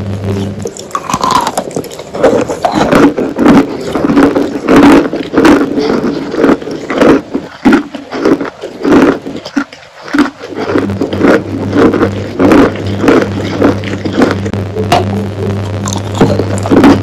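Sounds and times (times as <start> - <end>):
low steady hum: 0.0 - 17.0
wet chewing crunches: 0.6 - 14.6, 15.6 - 17.0.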